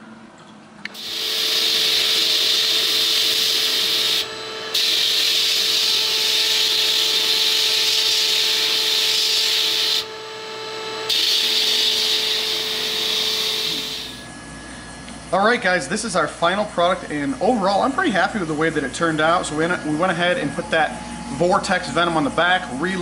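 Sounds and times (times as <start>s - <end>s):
sandblast gun hissing: 0.9s - 10.1s, 11.0s - 14.2s.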